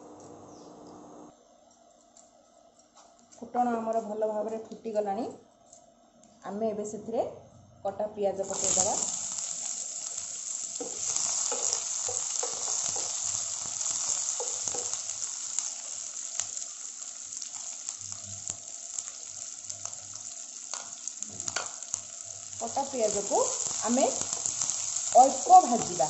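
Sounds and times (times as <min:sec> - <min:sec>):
onions sizzling in oil: 0:08.4 - 0:26.0.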